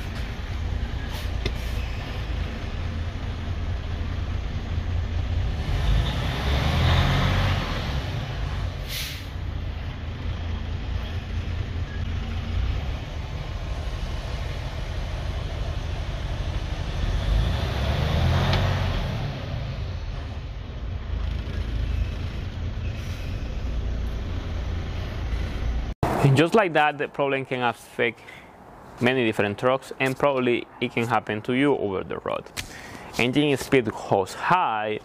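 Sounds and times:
diesel engine rumble: 0:00.0 - 0:27.2
sharp hiss: 0:08.8 - 0:09.4.

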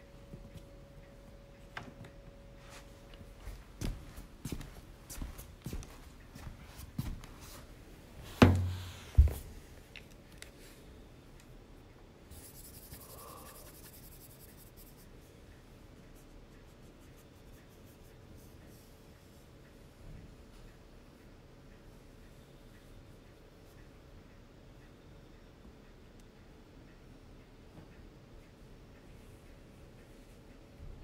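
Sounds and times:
sharp thumps: 0:08.4 - 0:09.4.

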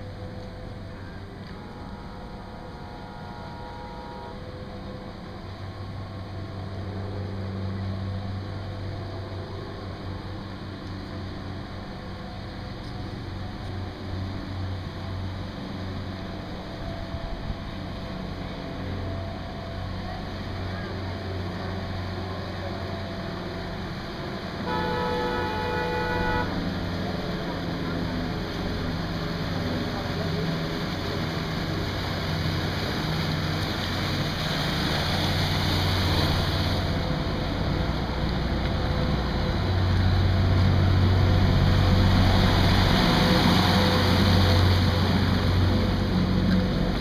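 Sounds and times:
boat engine drone: 0:00.0 - 0:47.0
boat horn blast: 0:00.9 - 0:04.9, 0:24.6 - 0:28.1.

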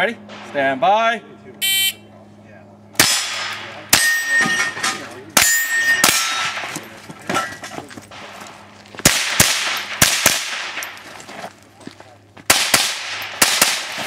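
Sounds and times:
rifle shots: 0:03.0 - 0:04.1, 0:08.1 - 0:11.0, 0:12.5 - 0:14.0
steel targets ringing: 0:03.0 - 0:08.4.

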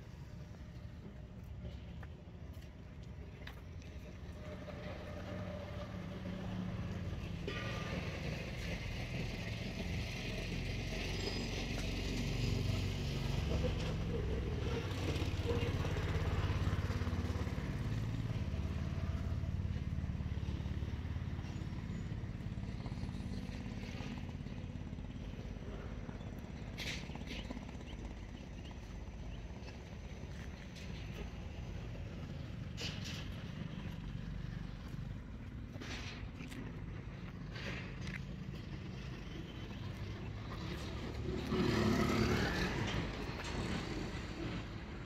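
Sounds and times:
rumble of passing traffic: 0:00.0 - 0:45.0.

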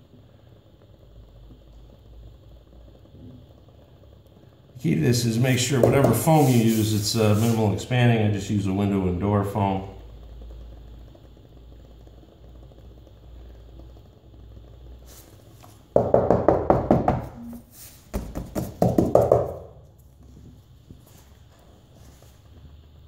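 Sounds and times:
hand knocking on floor planks: 0:05.8 - 0:06.3, 0:16.0 - 0:17.5, 0:18.1 - 0:19.6.

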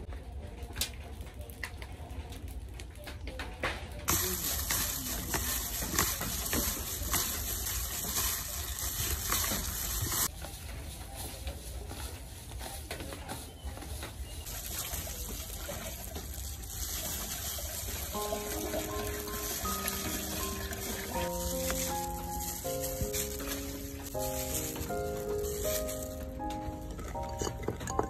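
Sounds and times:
wet squelching of raw meat: 0:04.1 - 0:10.3, 0:14.4 - 0:27.2
plastic glove crinkling: 0:04.1 - 0:28.0.

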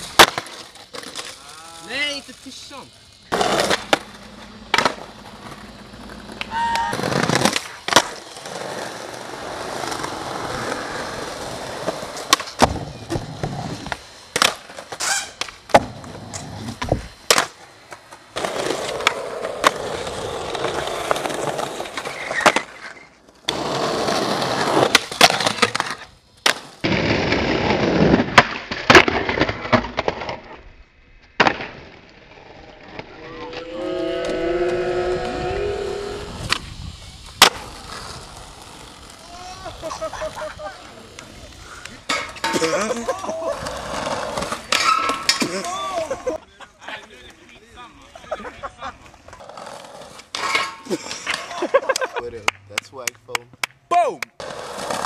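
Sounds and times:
skateboards clacking: 0:00.0 - 0:30.6, 0:31.3 - 0:55.0
skateboards rolling on concrete: 0:00.0 - 0:55.0
skateboard grinding on metal rail: 0:03.2 - 0:30.6, 0:31.4 - 0:40.5, 0:42.0 - 0:46.3, 0:49.3 - 0:51.6.

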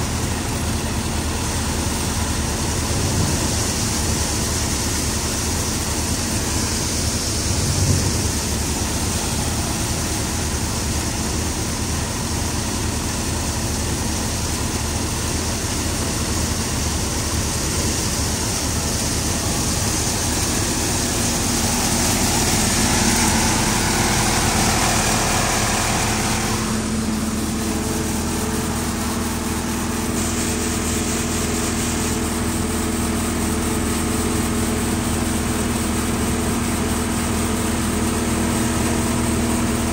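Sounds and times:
tractor engine drone: 0:00.0 - 0:39.9
threshing machine hiss: 0:01.8 - 0:11.8, 0:16.7 - 0:35.2.

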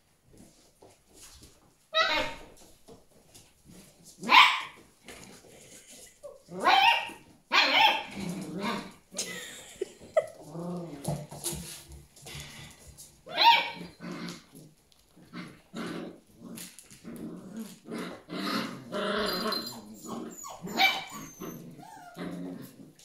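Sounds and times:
puppy yipping: 0:06.6 - 0:08.1, 0:13.3 - 0:13.8, 0:19.2 - 0:22.2
puppies growling: 0:08.0 - 0:11.3, 0:13.7 - 0:23.0.

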